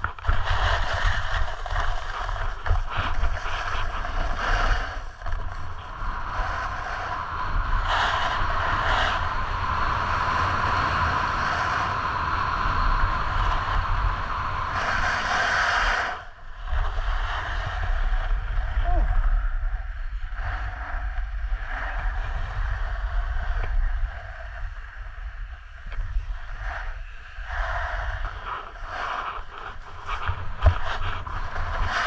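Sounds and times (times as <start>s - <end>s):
snowboard scraping on snow: 0.0s - 18.7s, 26.0s - 32.0s
wind rumble on microphone: 0.0s - 32.0s.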